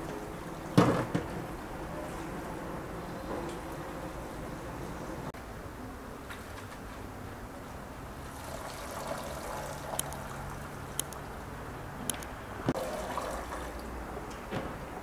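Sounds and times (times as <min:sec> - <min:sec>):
tap water running and splashing: 0:08.2 - 0:10.7, 0:12.8 - 0:14.0.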